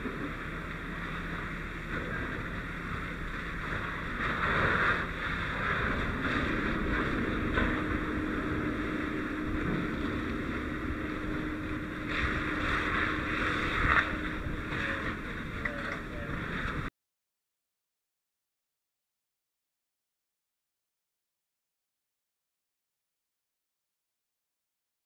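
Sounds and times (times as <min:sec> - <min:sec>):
faint steady hum: 0:00.0 - 0:16.9
wind rumble on microphone: 0:00.0 - 0:16.9
water spraying on metal: 0:03.1 - 0:15.6.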